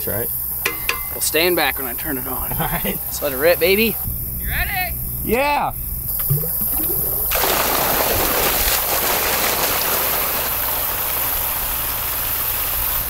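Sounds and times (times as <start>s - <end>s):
water gushing from a pipe: 6.1s - 13.0s.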